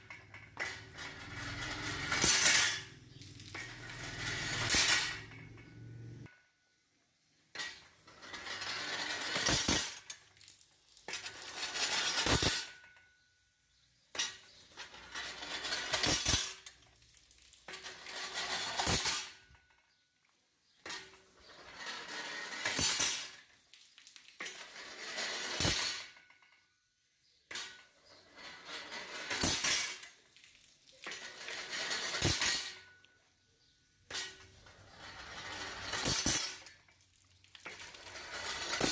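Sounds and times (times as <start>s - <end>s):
sharp metallic clank: 0.1s - 6.2s, 14.1s - 16.8s, 17.8s - 19.5s, 22.6s - 23.4s, 29.2s - 30.1s, 31.9s - 33.0s, 35.4s - 36.8s.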